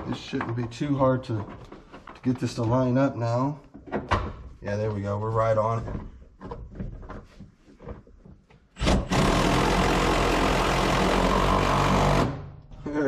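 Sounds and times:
power tool running: 8.8 - 12.5.

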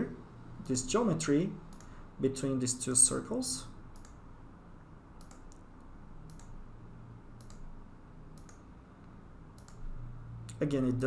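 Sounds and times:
low steady hum: 0.0 - 11.0
computer mouse clicks: 1.7 - 2.0, 3.9 - 4.2, 5.2 - 6.6, 7.4 - 7.7, 8.4 - 9.9.

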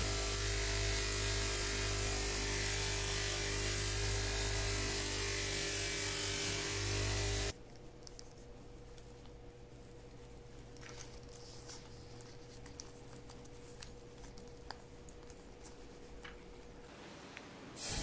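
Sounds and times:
polishing motor humming: 0.0 - 7.6.

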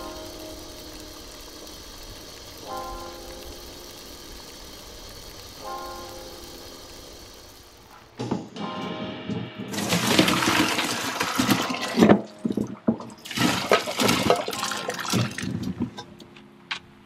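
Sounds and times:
water pouring into colander: 0.0 - 7.9, 9.7 - 15.8.

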